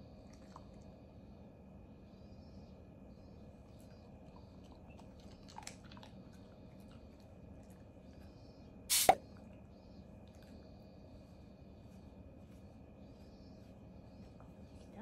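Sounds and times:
dog chewing a treat: 3.8s - 8.3s.

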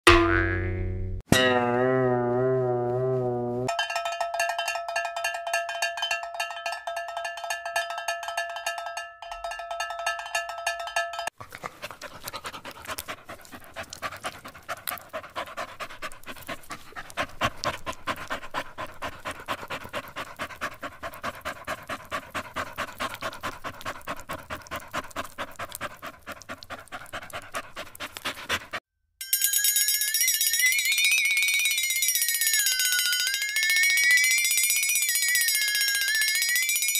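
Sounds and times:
pulsing ringing tone: 29.6s - 36.9s.

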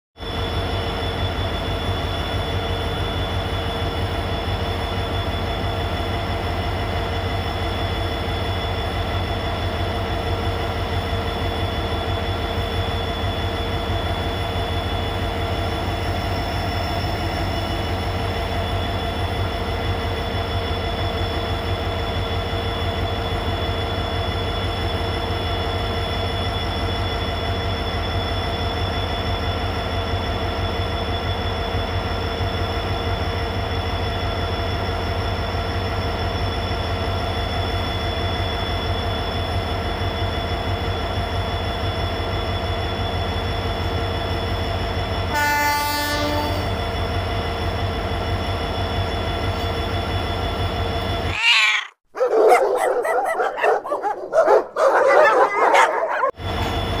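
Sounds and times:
diesel locomotives idling: 0.2s - 51.4s, 52.1s - 57.0s.

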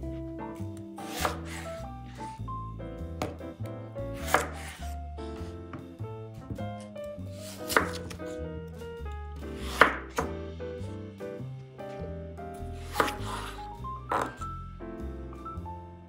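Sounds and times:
background music: 0.0s - 16.0s
knife chopping on cutting board: 1.0s - 2.3s, 3.2s - 3.5s, 4.2s - 4.9s, 7.4s - 8.3s, 9.5s - 10.4s, 12.8s - 14.4s.

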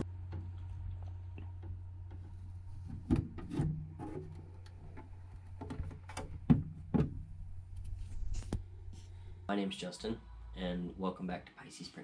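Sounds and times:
steady low hum: 0.0s - 11.6s
rubbing sounds: 7.7s - 9.2s.

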